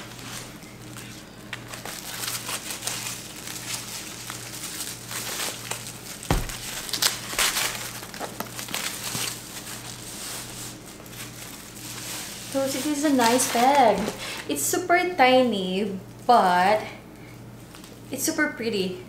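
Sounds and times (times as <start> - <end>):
packaging wrap crinkling: 0.0 - 14.5
dull thump: 6.3 - 7.0.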